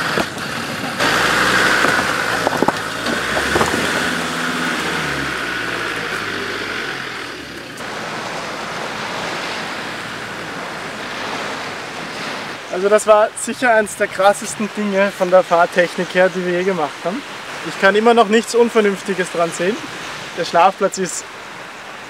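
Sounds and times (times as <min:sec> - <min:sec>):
sharp knocks: 0:00.0 - 0:04.5
diesel engine working slowly: 0:00.0 - 0:09.0
surf: 0:00.0 - 0:22.0
wind: 0:00.0 - 0:22.0.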